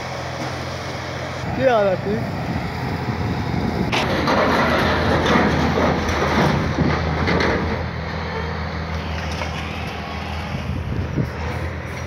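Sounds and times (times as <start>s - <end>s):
diesel engine running: 0.0s - 12.0s
sheet metal grinding and clanking: 3.9s - 8.5s.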